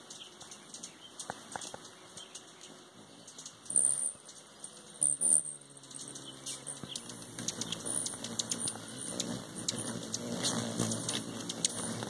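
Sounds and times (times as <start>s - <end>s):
hummingbird wings humming: 0.0s - 12.0s
high squeaky chip calls: 5.0s - 12.0s.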